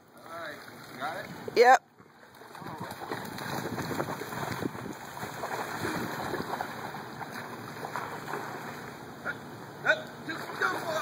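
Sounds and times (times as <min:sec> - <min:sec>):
dog and feet splashing in water: 0:02.0 - 0:09.0
sharp splashes: 0:02.2 - 0:09.0, 0:10.2 - 0:11.0.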